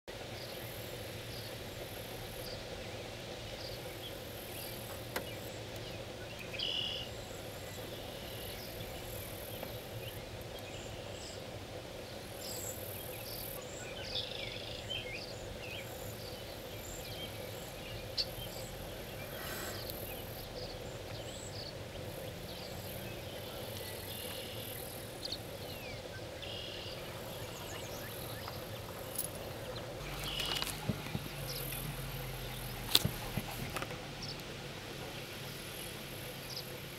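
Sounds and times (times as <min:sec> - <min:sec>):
bird chirps: 0:03.6 - 0:11.4, 0:12.4 - 0:34.4
insects trilling: 0:12.2 - 0:36.9.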